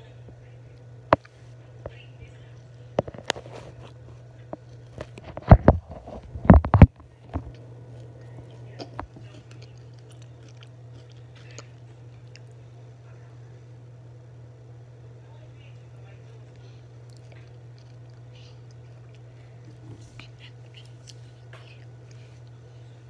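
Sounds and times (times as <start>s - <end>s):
person chewing food: 3.0s - 12.6s, 16.9s - 23.0s.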